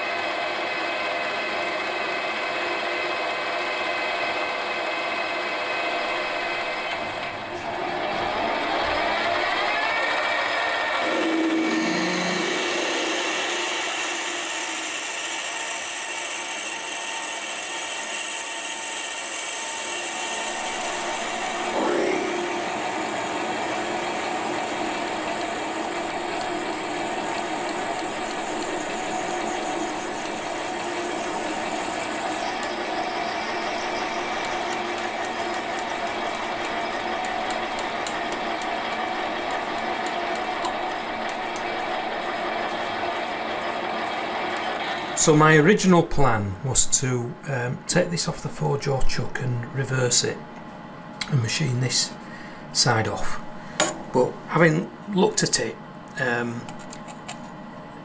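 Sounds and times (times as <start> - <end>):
high whine: 7.5 - 14.8, 20.5 - 35.9
metal lathe drilling steel: 9.5 - 45.2.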